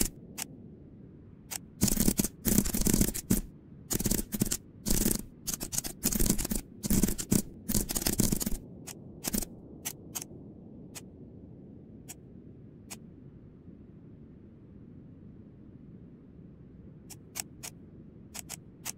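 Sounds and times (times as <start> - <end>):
faint steady hum: 0.0 - 18.9
computer keyboard typing: 1.5 - 8.6, 9.2 - 10.3.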